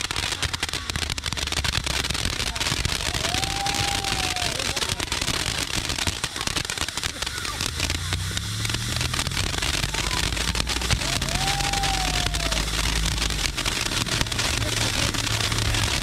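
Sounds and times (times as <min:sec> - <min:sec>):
firework hissing and crackling: 0:00.0 - 0:16.0
low rumble: 0:07.2 - 0:16.0.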